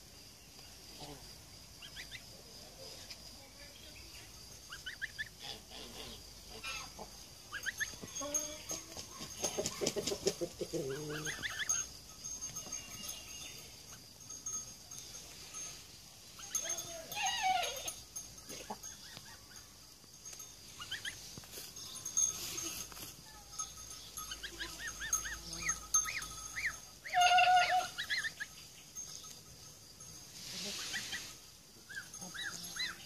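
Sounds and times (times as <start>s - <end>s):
chickens clucking and chirping: 4.6s - 14.0s, 20.6s - 22.5s, 23.7s - 28.7s, 30.4s - 33.0s.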